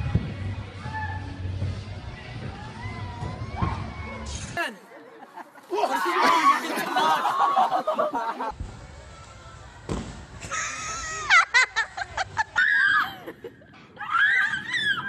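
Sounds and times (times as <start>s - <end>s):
young people shouting and laughing: 2.7s - 8.5s, 10.5s - 15.0s.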